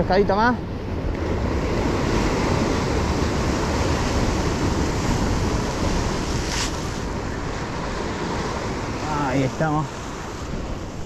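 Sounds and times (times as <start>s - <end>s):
sea surf breaking over rocks: 0.0s - 11.0s
wind rumbling on microphone: 0.0s - 11.0s
brief hiss: 6.5s - 6.9s.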